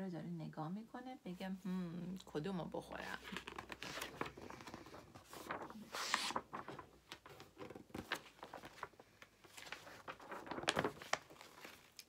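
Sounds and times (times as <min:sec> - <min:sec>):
book pages rustling and turning: 0:03.0 - 0:12.0.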